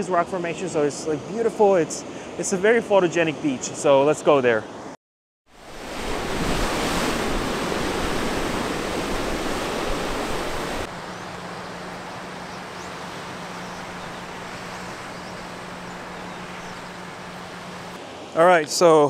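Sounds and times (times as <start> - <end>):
surf rushing: 5.6 - 18.0.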